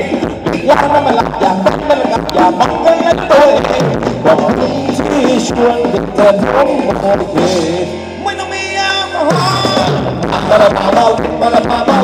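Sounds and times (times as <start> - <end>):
steady drum beat: 0.0 - 7.9, 9.2 - 12.0
live band dance music: 0.0 - 12.0
person singing: 0.0 - 12.0.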